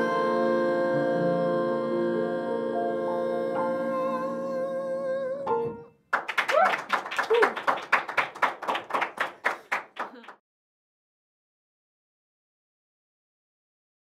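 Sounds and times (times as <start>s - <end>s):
piano chords: 0.0s - 6.1s
people clapping: 6.1s - 10.4s
people whooping: 6.4s - 7.8s.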